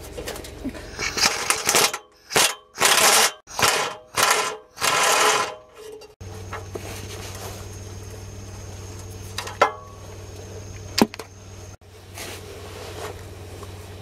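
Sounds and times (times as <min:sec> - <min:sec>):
impact wrench hammering: 0:01.0 - 0:05.7.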